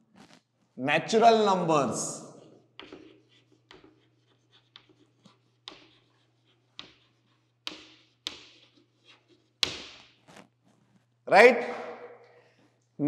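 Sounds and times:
chalk tapping and scratching: 0:02.4 - 0:11.1.

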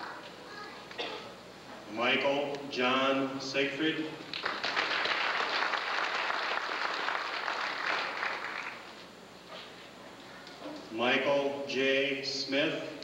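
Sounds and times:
audience applauding: 0:04.3 - 0:09.0.

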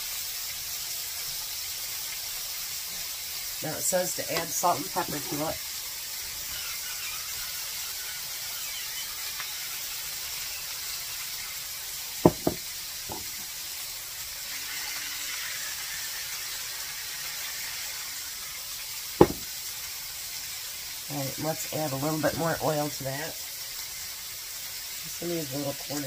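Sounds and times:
patties sizzling in oil: 0:00.0 - 0:26.0
sharp knocks: 0:12.2 - 0:13.3, 0:19.2 - 0:19.5.

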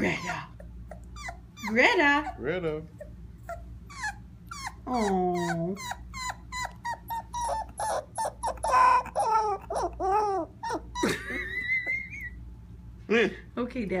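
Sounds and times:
puppy yipping and howling: 0:00.0 - 0:02.3, 0:03.4 - 0:12.4.

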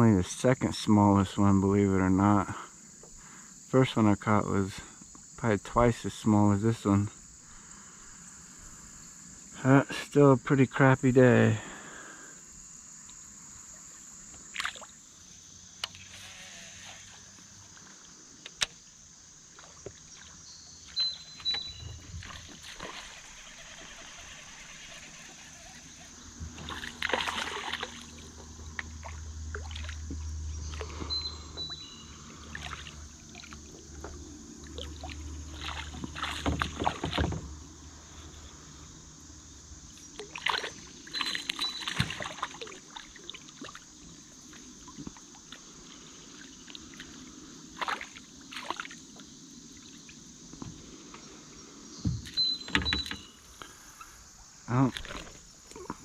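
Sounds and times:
insects chirring: 0:00.0 - 0:56.0
water splashing: 0:21.9 - 0:31.0, 0:32.3 - 0:37.4, 0:40.1 - 0:49.2
kayak paddling knocks: 0:33.5 - 0:37.6, 0:40.1 - 0:43.8, 0:52.0 - 0:53.4.

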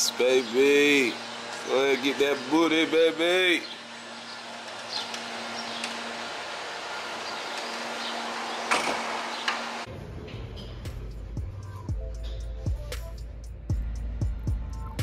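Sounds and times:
deep steady bass: 0:09.9 - 0:15.0.

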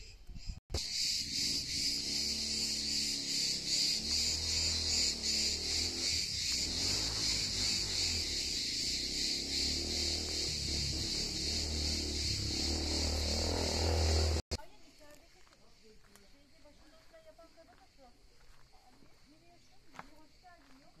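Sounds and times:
cicadas chorus: 0:00.7 - 0:21.0.

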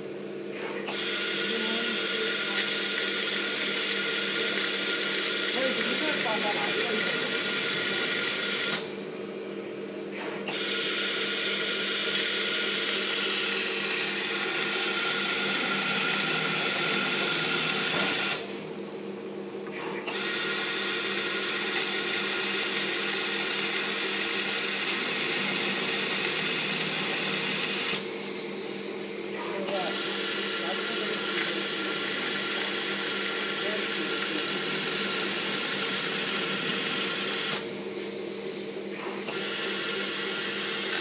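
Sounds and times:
motor hum: 0:00.0 - 0:41.0
blade hissing cutting vinyl: 0:13.7 - 0:18.5.

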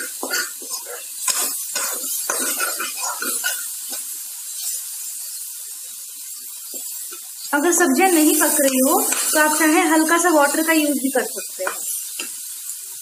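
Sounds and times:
spoon scraping pan: 0:00.0 - 0:04.8, 0:08.3 - 0:09.7
vegetables sizzling: 0:00.0 - 0:13.0.

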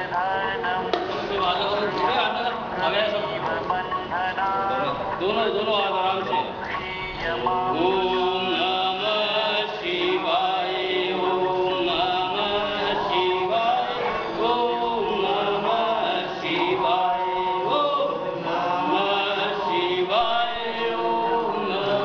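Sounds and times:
group of voices chanting: 0:05.2 - 0:22.0.

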